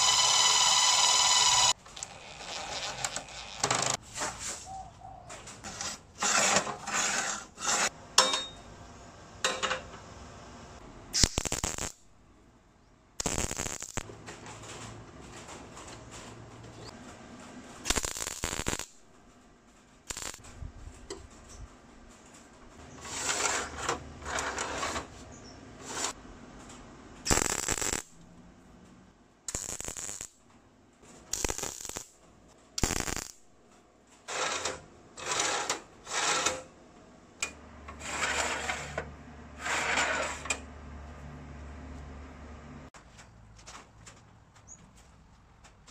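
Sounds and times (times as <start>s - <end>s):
welding arc crackling: 11.2s - 12.1s, 13.2s - 14.1s, 17.8s - 19.0s, 20.0s - 20.5s, 27.2s - 28.2s, 29.5s - 30.4s, 31.3s - 32.2s, 32.8s - 33.5s.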